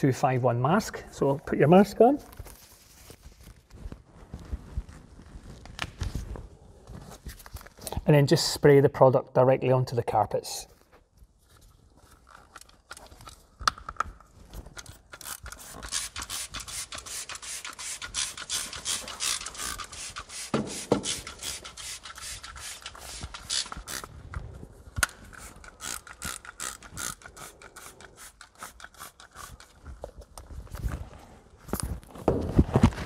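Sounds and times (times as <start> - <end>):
trigger sprayer hissing: 15.5 - 24.1.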